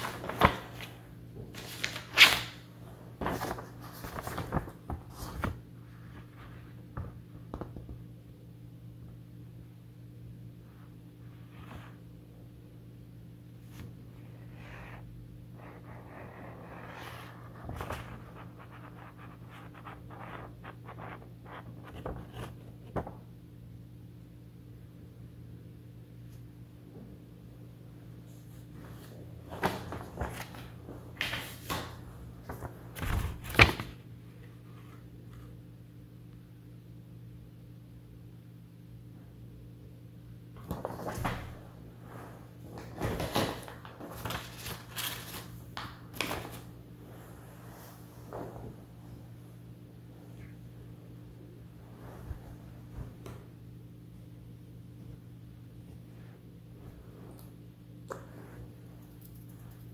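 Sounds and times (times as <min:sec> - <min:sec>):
sticky notes rustling and crinkling: 0:00.0 - 0:07.8, 0:28.3 - 0:34.0, 0:42.3 - 0:48.8
low steady hum: 0:00.0 - 0:59.9.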